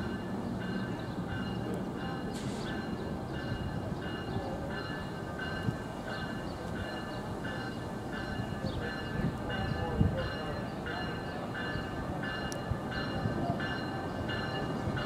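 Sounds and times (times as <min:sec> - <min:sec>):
train rumbling by: 0:00.0 - 0:15.0.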